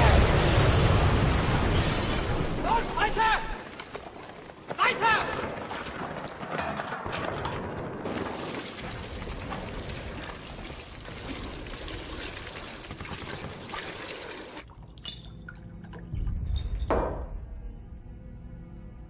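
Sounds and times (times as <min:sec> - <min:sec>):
petrol splashing and gurgling: 0:07.4 - 0:16.2.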